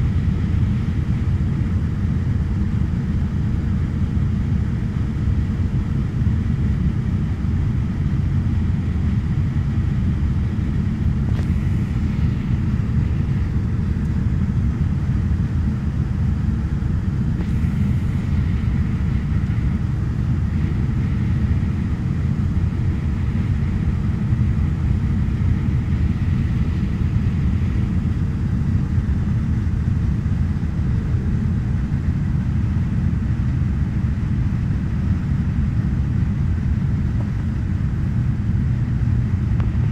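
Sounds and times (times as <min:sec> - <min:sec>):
faint steady hum: 0:00.0 - 0:39.9
turboprop engines droning: 0:00.0 - 0:39.9.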